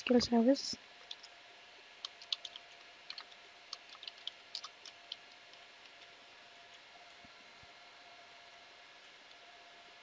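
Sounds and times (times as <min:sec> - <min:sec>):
keyboard typing: 0:01.0 - 0:01.3, 0:02.0 - 0:06.2.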